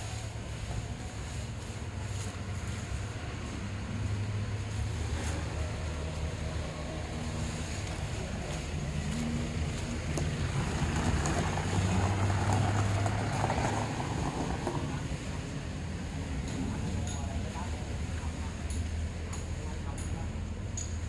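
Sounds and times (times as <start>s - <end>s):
engine humming: 0.0s - 21.0s.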